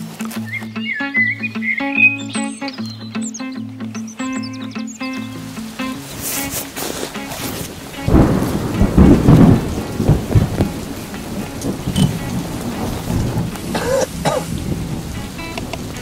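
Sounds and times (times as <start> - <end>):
wind buffeting microphone: 5.6 - 16.0.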